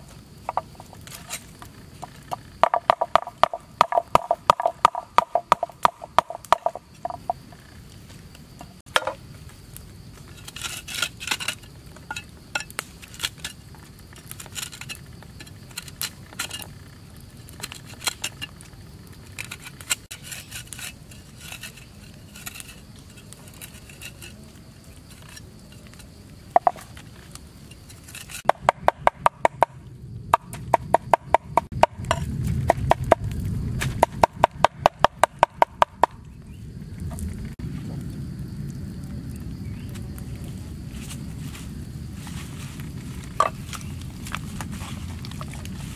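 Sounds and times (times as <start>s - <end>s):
cleaver scraping into metal pan: 10.4s - 13.6s, 19.3s - 24.4s, 27.7s - 28.5s.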